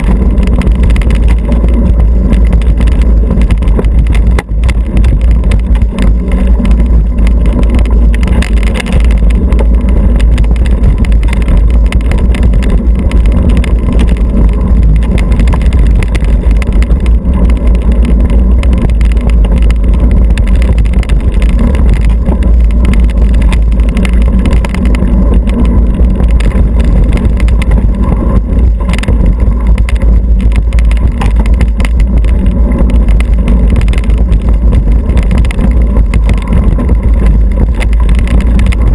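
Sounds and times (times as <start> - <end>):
bike tyres and frame rumbling: 0.0 - 38.9
wind buffeting microphone: 0.0 - 38.9.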